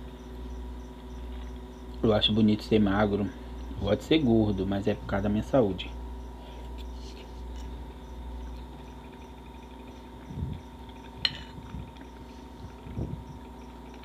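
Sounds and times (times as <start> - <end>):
man chewing food: 0.0 - 1.7, 6.5 - 14.0
electric fan humming: 0.0 - 14.0.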